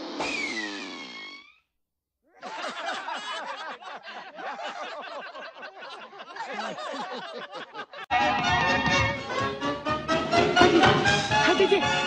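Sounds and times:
cartoon characters laughing: 2.3 - 8.1, 10.4 - 12.0.

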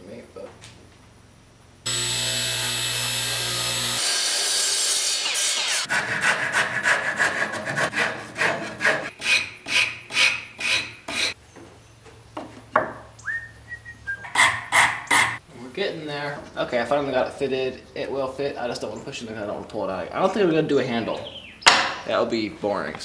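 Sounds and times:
table saw running: 1.9 - 6.2
hand tool rasping wood: 5.4 - 11.4, 14.2 - 15.4.

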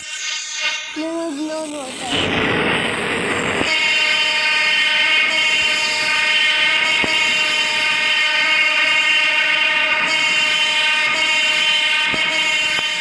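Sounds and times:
loud rushing noise: 0.0 - 8.8
train horn: 3.6 - 13.0.

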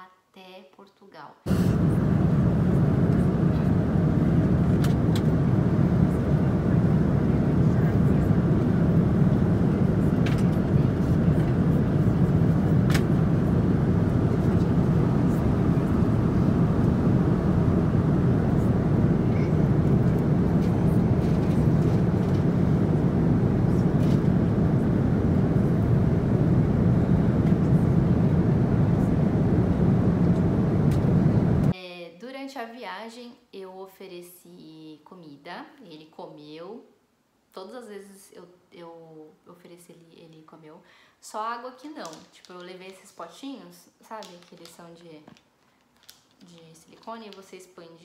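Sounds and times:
airliner cabin roar: 1.5 - 31.7.

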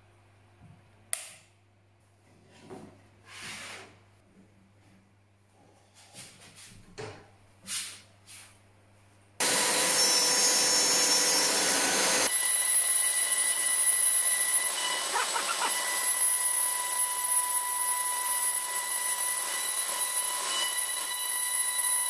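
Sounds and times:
router whining: 9.4 - 22.0.

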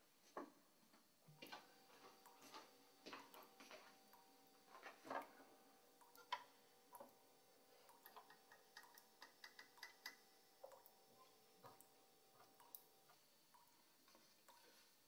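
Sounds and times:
faint steady hum: 0.0 - 15.0
soft irregular clicks: 6.0 - 7.2, 7.8 - 14.9.

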